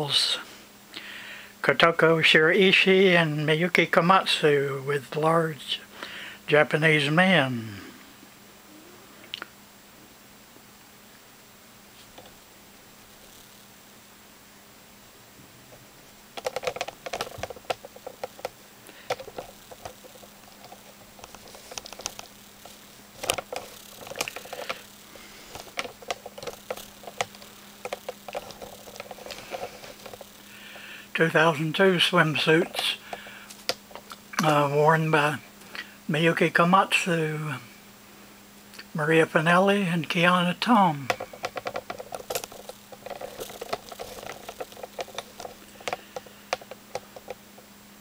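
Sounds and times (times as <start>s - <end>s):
steady low hum: 0.0s - 48.0s
small rapid clicks and ticks: 15.7s - 34.6s, 41.0s - 47.8s.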